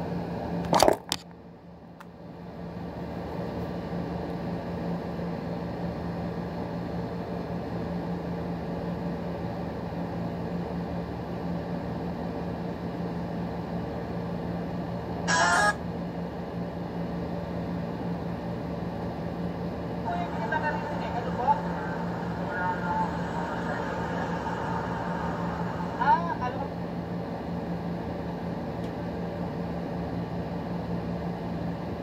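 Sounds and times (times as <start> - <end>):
low machine hum: 0.0 - 32.0
sharp burst of noise: 20.3 - 27.0.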